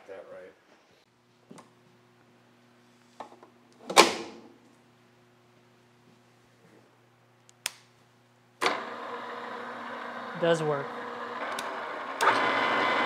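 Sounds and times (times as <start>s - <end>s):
drill press running: 8.6s - 13.0s.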